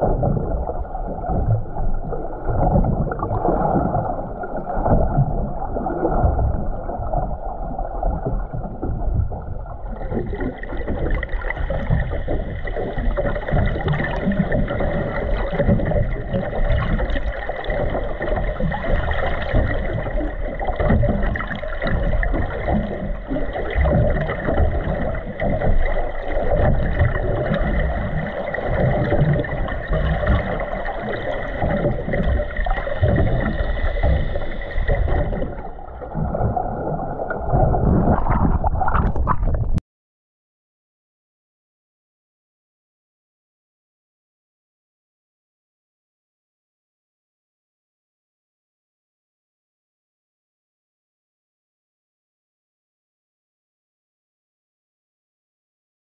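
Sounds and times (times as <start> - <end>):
underwater rumble and sloshing: 0.0 - 39.8.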